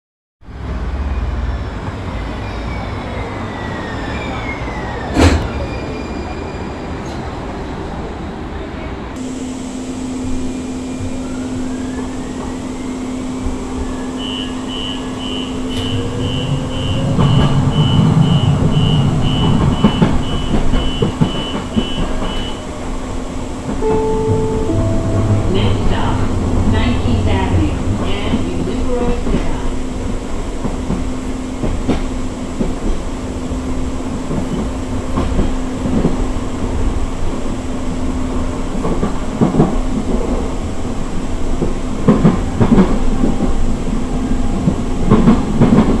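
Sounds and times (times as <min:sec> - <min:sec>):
light-rail train arriving: 0:00.5 - 0:46.0
steady hum inside train car: 0:06.8 - 0:46.0
door warning beeps: 0:14.2 - 0:22.6.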